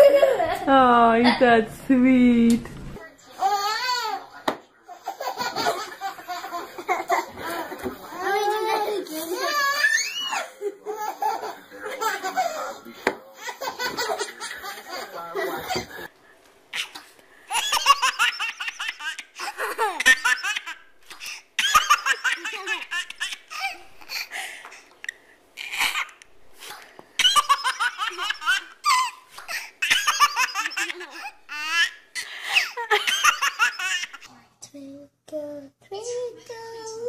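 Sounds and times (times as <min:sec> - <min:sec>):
baby laughing: 0:04.9 - 0:12.8, 0:13.4 - 0:16.0, 0:16.7 - 0:24.4, 0:27.2 - 0:34.3.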